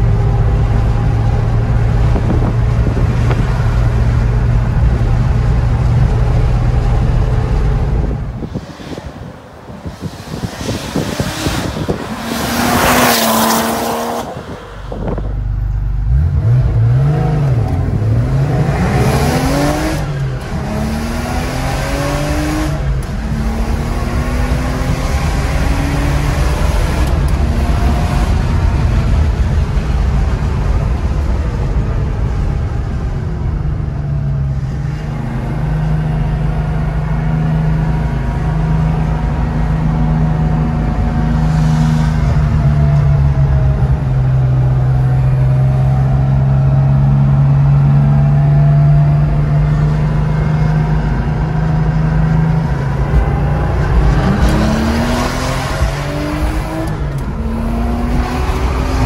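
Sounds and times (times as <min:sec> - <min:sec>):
car engine accelerating through gears: 0:00.0 - 0:33.0, 0:33.6 - 0:59.0
car passing by at speed: 0:08.4 - 0:15.3.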